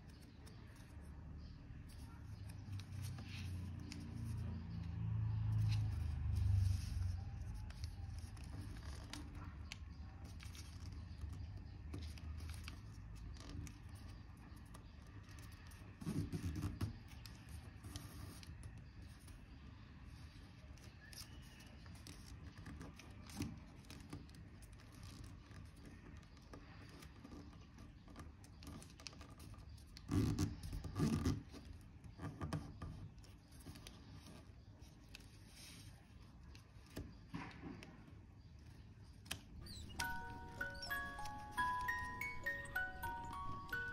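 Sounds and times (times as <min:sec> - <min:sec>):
paper handling noise: 0:00.0 - 0:19.3
paper folding and rustling: 0:01.8 - 0:04.8, 0:05.4 - 0:19.3, 0:20.1 - 0:38.0.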